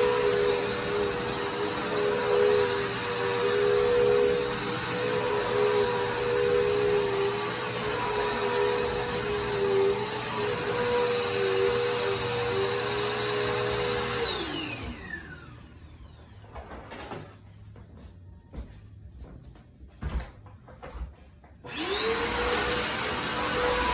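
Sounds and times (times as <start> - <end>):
vacuum cleaner motor whine: 0.0 - 16.8, 21.6 - 23.9.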